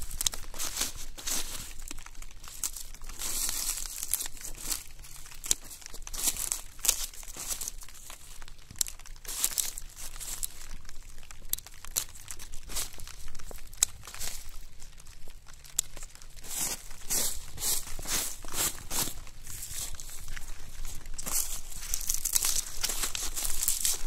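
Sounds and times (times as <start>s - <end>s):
dry leaves crackling on plastic: 0.0s - 24.0s.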